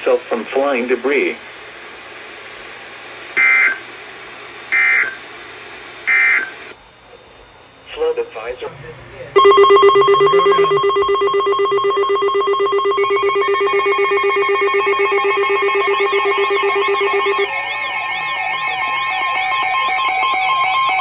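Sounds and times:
warbling siren: 8.5 - 21.0
pulsing two-tone alarm: 8.7 - 21.0.

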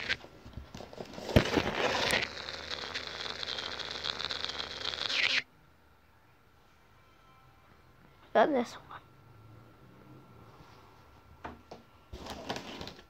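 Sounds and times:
rustling hiss: 1.5 - 5.4.

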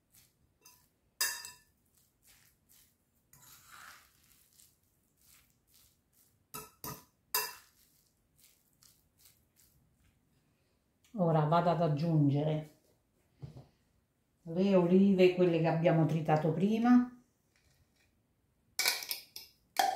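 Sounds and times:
food scraping and squelching: 0.0 - 10.7
spoon clinking against glass: 0.6 - 1.7, 6.6 - 7.7.

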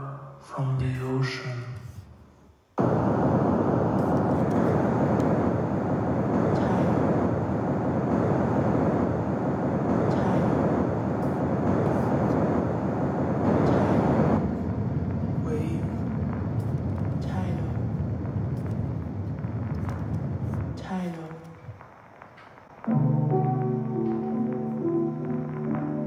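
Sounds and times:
ocean waves rushing: 2.8 - 16.4.

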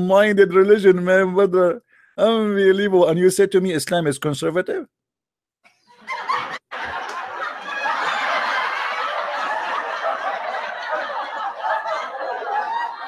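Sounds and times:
audience laughing: 5.9 - 13.0.

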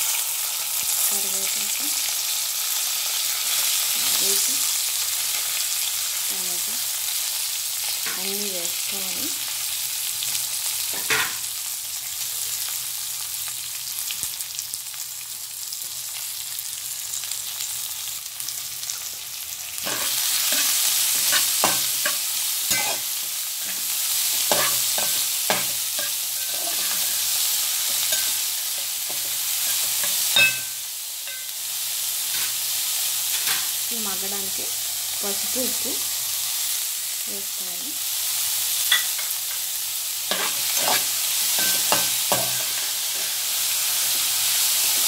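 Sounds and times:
vegetables sizzling in hot oil: 0.0 - 45.0
spoon scraping and knocking pan: 19.8 - 31.5, 32.3 - 32.6, 33.3 - 33.7, 38.9 - 39.6, 40.3 - 43.4.

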